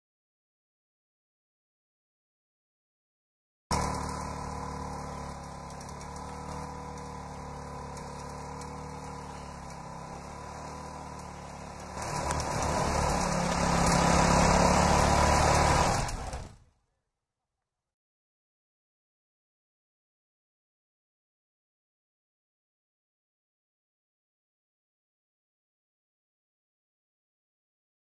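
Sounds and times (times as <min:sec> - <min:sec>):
engine running: 0:03.7 - 0:16.8.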